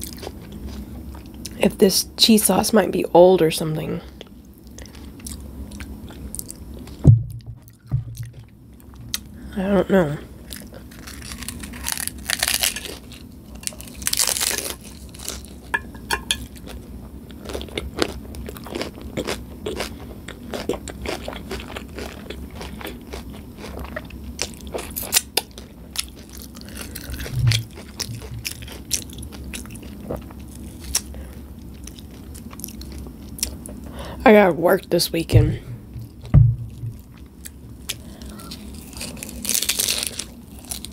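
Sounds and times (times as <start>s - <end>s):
crunching bites into taco shell: 10.5s - 15.7s, 37.9s - 40.9s
chewing crisp shell: 10.5s - 31.1s.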